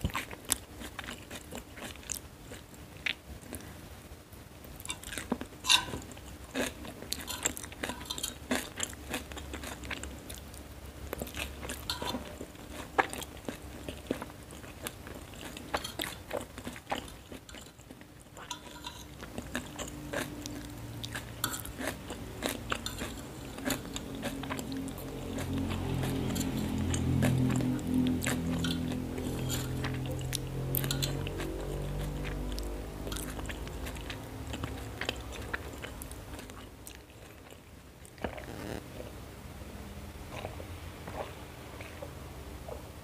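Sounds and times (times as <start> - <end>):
chewing crunchy noodles: 0.0 - 3.8, 4.8 - 38.8, 40.3 - 42.9
fork clicking on plate: 5.7 - 6.0, 7.2 - 8.7, 11.8 - 12.3, 15.7 - 16.3, 18.4 - 19.9, 21.4 - 22.0, 22.7 - 27.6, 28.3 - 32.2.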